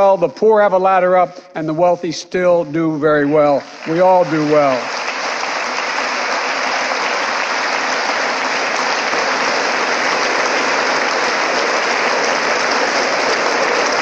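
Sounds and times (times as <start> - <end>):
crowd applauding: 3.2 - 14.0.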